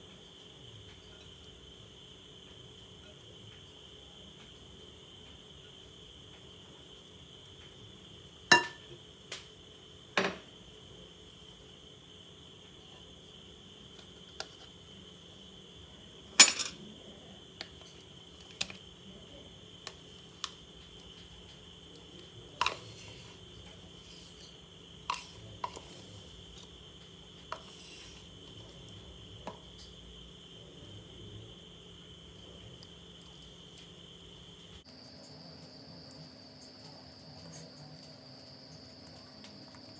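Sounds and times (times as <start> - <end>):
spoon and whisk clinking on glass bowl: 8.5 - 8.9.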